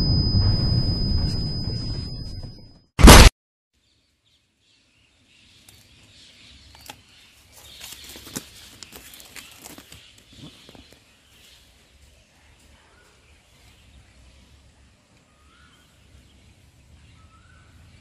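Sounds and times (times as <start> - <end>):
loud burst of noise: 0.0 - 3.3
faint outdoor background: 0.0 - 18.0.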